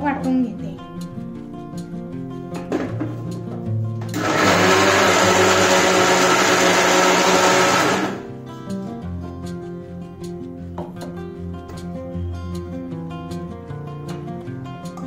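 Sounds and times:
mixer grinder whirring: 0:04.1 - 0:08.3.

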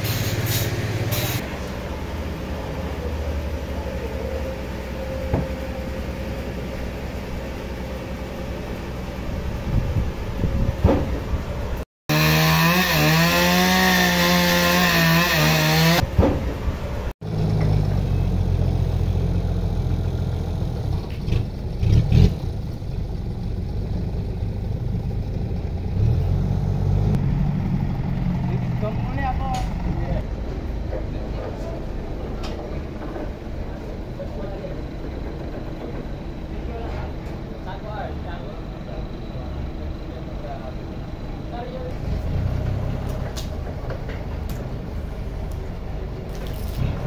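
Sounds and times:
forklift engine running: 0:00.0 - 0:11.8, 0:12.8 - 0:47.0
low engine hum: 0:00.0 - 0:11.9, 0:16.0 - 0:47.0
chainsaw cutting log: 0:12.1 - 0:16.0.

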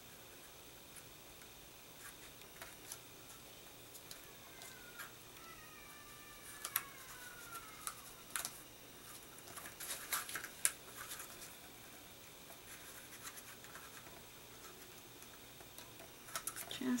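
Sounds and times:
card stock crinkles and taps: 0:06.6 - 0:11.5.

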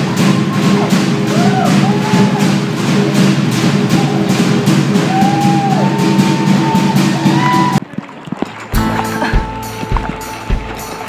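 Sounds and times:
fast drumming: 0:00.0 - 0:07.8, 0:08.8 - 0:11.0
sliding sung or shouted calls: 0:00.0 - 0:07.8.

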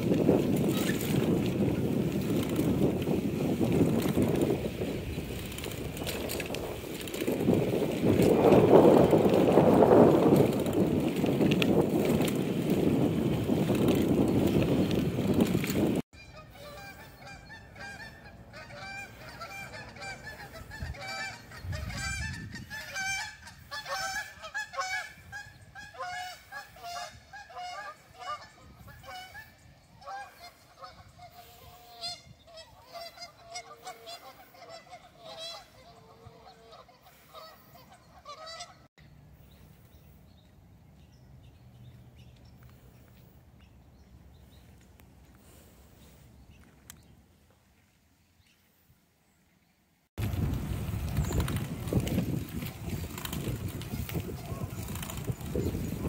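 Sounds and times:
outdoor background: 0:00.0 - 0:56.0
geese honking: 0:16.2 - 0:38.9.

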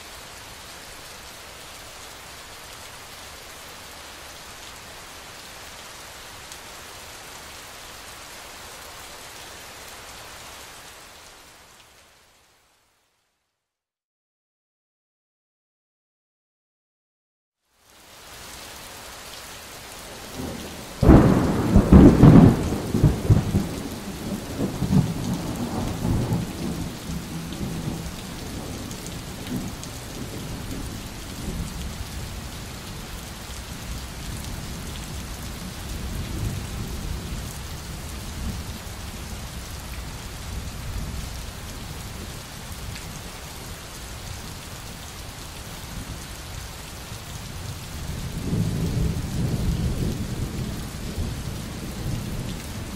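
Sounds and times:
steady rain: 0:00.0 - 0:13.5, 0:17.6 - 0:52.9
thunder rumbling: 0:20.4 - 0:28.9.

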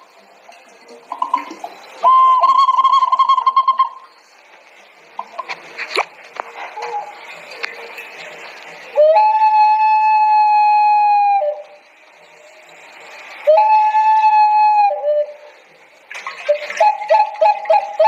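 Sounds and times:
ceramic whistling vessel: 0:00.0 - 0:04.4, 0:06.6 - 0:18.0
rapid warbling whistle: 0:01.0 - 0:04.3, 0:08.8 - 0:18.0.

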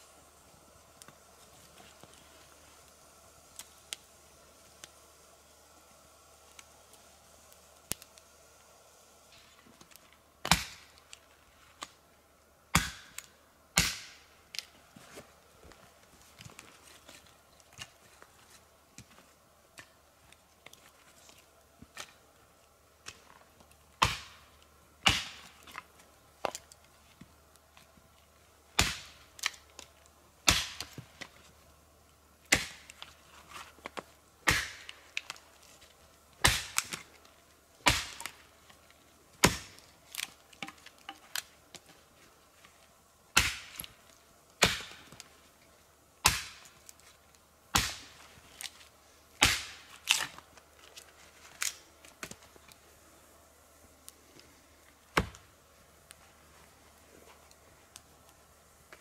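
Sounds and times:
axe chopping wood: 0:12.7 - 0:13.2, 0:24.0 - 0:24.4, 0:25.0 - 0:25.5, 0:28.8 - 0:29.2, 0:30.5 - 0:30.9, 0:32.5 - 0:32.9, 0:34.5 - 0:34.9, 0:36.4 - 0:37.0, 0:37.8 - 0:38.3, 0:39.4 - 0:40.8, 0:43.4 - 0:43.8, 0:44.6 - 0:45.1, 0:46.2 - 0:46.6, 0:47.7 - 0:48.1, 0:49.4 - 0:50.2, 0:55.1 - 0:55.4.

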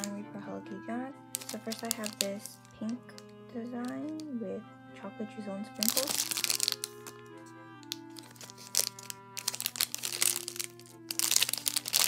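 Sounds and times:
background music with held notes: 0:00.0 - 0:12.0
plastic bag crinkling: 0:01.3 - 0:04.3, 0:05.8 - 0:12.0.

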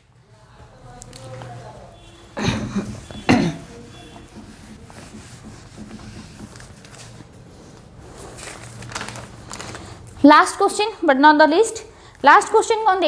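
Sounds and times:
duster rubbing on whiteboard: 0:01.4 - 0:08.4
whiteboard squeak: 0:02.0 - 0:06.2.

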